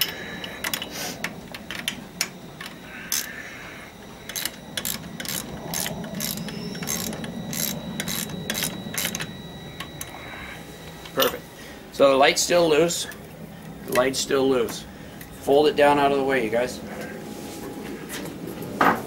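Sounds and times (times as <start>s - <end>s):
socket ratchet clicking: 4.3s - 10.1s.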